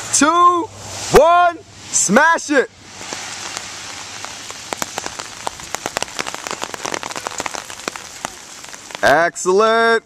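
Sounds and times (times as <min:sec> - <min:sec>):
rain falling on foliage: 0:00.0 - 0:10.0
raindrops ticking: 0:02.7 - 0:09.7.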